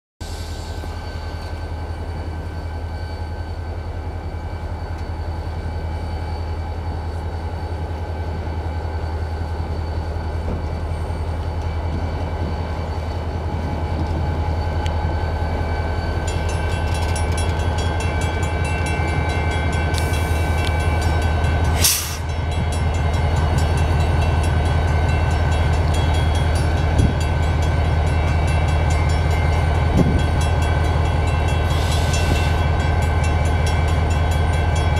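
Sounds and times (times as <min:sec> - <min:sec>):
diesel locomotive rumbling: 0:00.2 - 0:34.9
short burst of hiss: 0:21.8 - 0:22.3.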